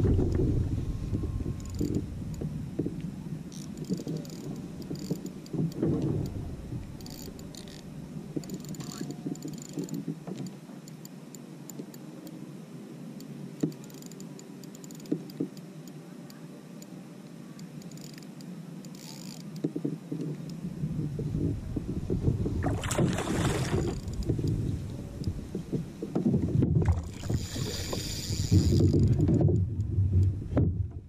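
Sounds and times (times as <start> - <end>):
wind rumble on microphone: 0.0 - 10.5, 19.6 - 31.0
fishing reel clicking: 1.6 - 2.0, 3.5 - 5.5, 7.0 - 7.8, 8.4 - 10.0, 13.7 - 16.0, 17.7 - 19.7, 23.9 - 24.6, 27.4 - 29.2
water slapping against kayak hull: 21.2 - 31.0.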